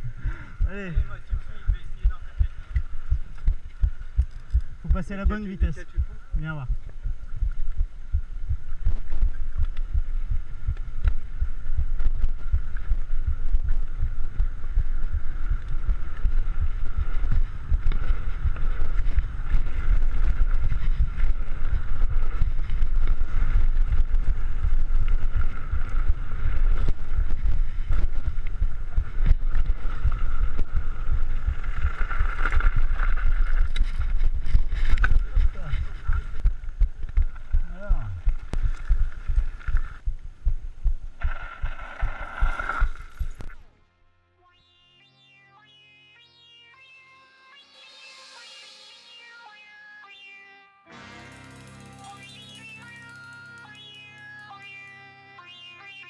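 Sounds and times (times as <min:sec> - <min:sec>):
bike tyres rumbling on gravel: 0:08.7 - 0:43.3
steady high whine: 0:43.7 - 0:56.0.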